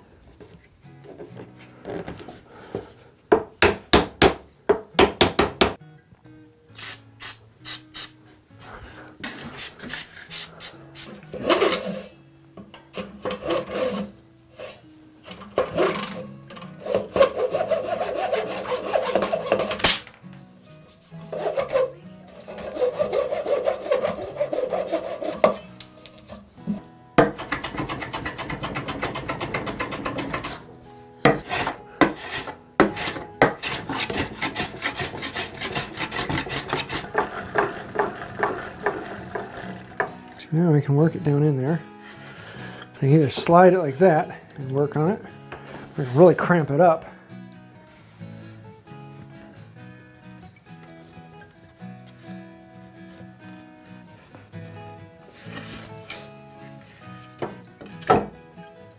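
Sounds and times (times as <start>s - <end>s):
hand saw cutting wood: 11.3s - 12.1s, 13.0s - 14.8s, 15.4s - 20.1s, 21.0s - 26.4s, 27.2s - 40.3s
rasping on wood: 16.8s - 19.8s, 20.9s - 25.6s, 27.3s - 30.7s, 31.3s - 40.1s.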